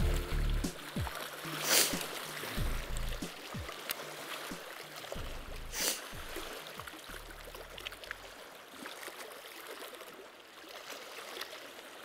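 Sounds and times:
low background music: 0.0 - 7.8
waves lapping against concrete: 0.0 - 12.0.

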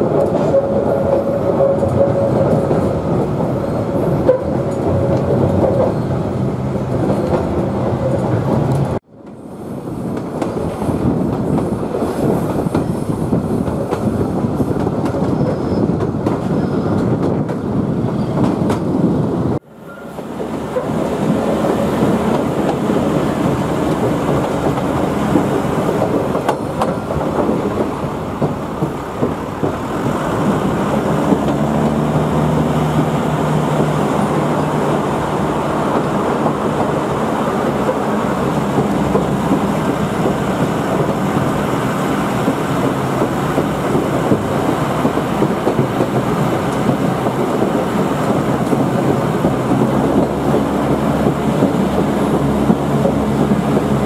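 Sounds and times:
wheels rumbling on rails: 0.0 - 54.0
diesel engine hum: 19.4 - 54.0.

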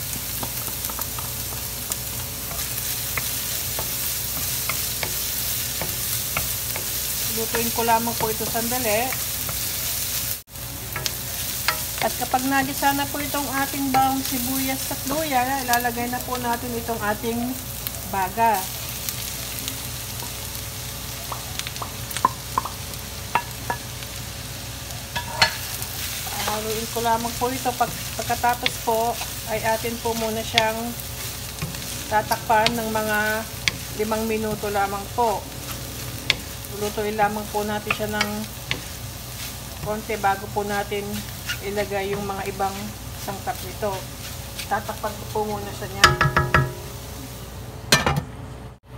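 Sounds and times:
aromatics sizzling in hot oil: 0.0 - 47.7
wooden spoon tapping a bowl: 21.3 - 23.8, 46.0 - 46.8
wooden spatula scraping wok: 25.2 - 46.7.

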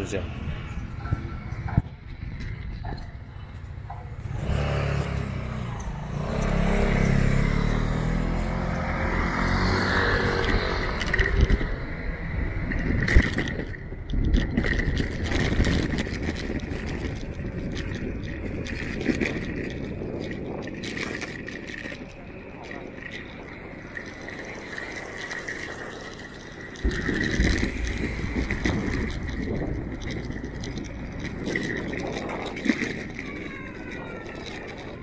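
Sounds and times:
motor vehicle passing: 3.9 - 34.9
scraping and clicking: 10.2 - 11.8, 12.6 - 35.0.

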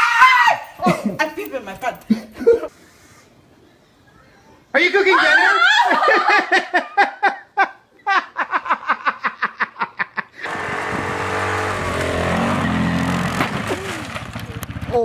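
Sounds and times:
woman laughing hard: 5.5 - 10.4
atv engine running in snow: 10.4 - 15.0.

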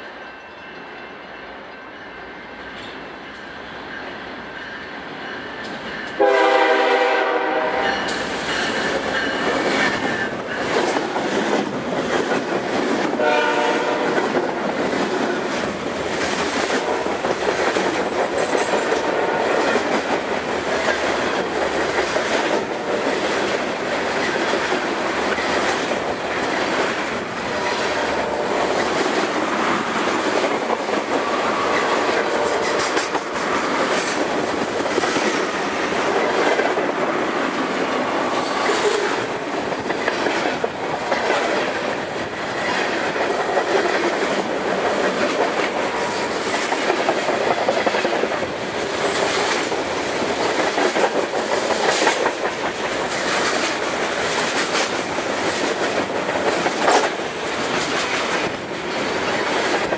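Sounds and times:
train rumble and wheel clatter: 0.0 - 59.9
locomotive horn blasts: 6.2 - 8.1, 13.2 - 14.2, 19.0 - 19.7, 27.5 - 28.7, 32.2 - 33.0.

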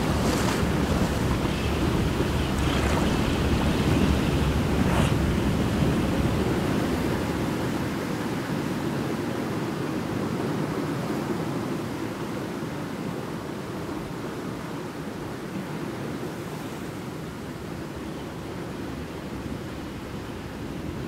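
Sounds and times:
wind rushing: 0.0 - 8.2
sea surf: 0.0 - 21.0.

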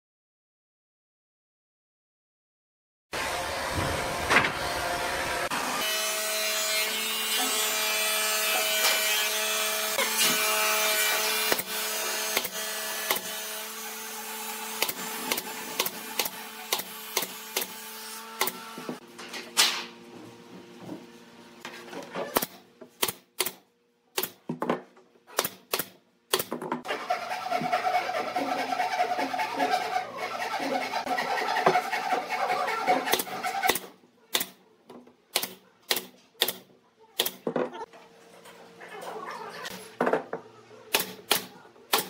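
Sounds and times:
nail gun clacks: 35.3 - 37.4.

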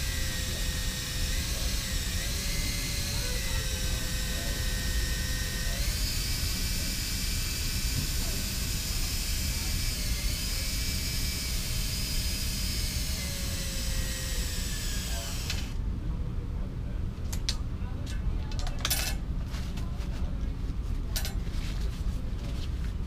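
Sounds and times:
cordless drill motor whining: 0.0 - 15.8.

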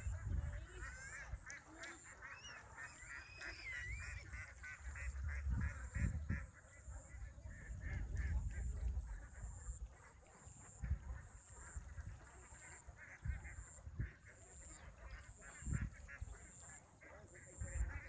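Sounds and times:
waterfowl calling: 0.0 - 8.7.

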